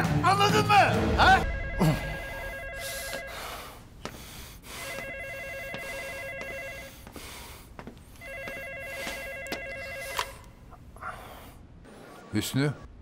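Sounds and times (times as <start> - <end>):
phone ringing electronic trill: 1.4 - 3.7, 4.8 - 6.9, 8.2 - 10.4.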